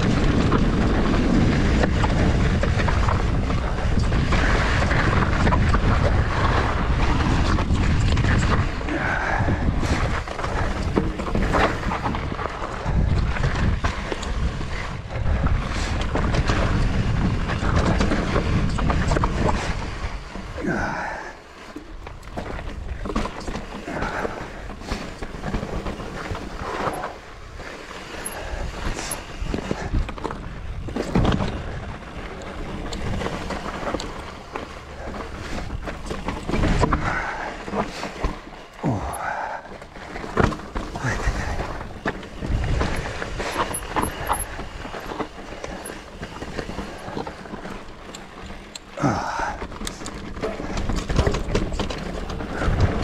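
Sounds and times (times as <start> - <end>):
wind buffeting microphone: 0.0 - 21.4, 23.9 - 53.0
clicks and rattles: 49.6 - 53.0.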